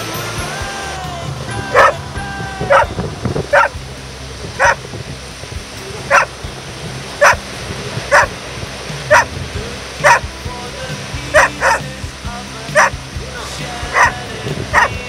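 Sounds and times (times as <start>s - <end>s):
dog barking: 1.7s - 2.0s, 2.7s - 2.9s, 3.5s - 3.7s, 4.6s - 4.8s, 6.1s - 6.3s, 7.2s - 7.4s, 8.1s - 8.3s, 9.1s - 9.3s, 10.0s - 10.2s, 11.4s - 11.8s, 13.9s - 15.0s.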